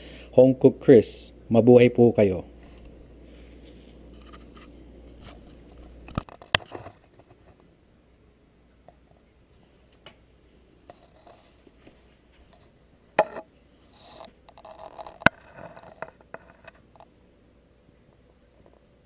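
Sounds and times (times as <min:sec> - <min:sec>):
faint rustling: 0:02.6 - 0:07.7.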